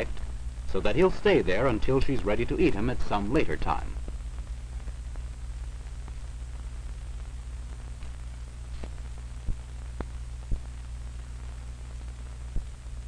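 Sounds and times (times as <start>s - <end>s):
crackles and pops: 0.0s - 13.0s
film soundtrack hiss: 0.0s - 13.0s
low hum: 0.0s - 13.0s.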